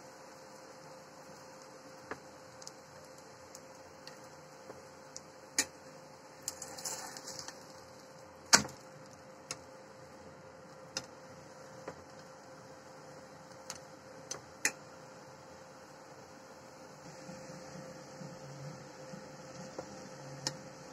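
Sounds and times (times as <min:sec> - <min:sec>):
steady low hum: 0:00.0 - 0:20.9.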